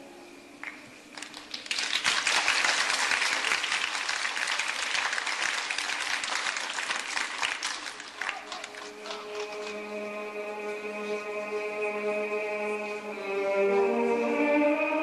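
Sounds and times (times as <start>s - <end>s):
audience applause: 1.1s - 9.9s.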